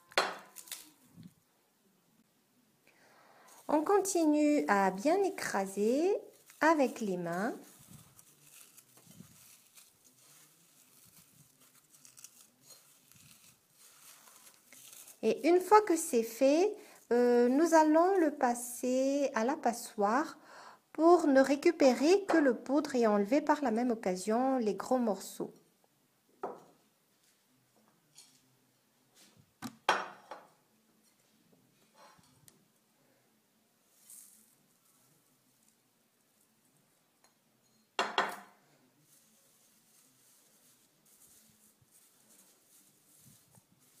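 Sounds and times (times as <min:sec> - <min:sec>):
dry bread crunching and rustling: 0:00.4 - 0:01.3, 0:03.6 - 0:15.7
faint handling noises: 0:03.4 - 0:15.8, 0:38.6 - 0:44.0.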